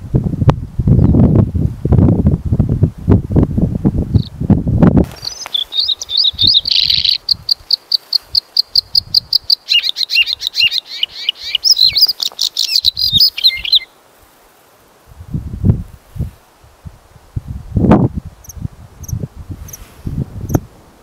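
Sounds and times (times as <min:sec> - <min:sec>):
bird singing high fast song: 0:05.1 - 0:14.0.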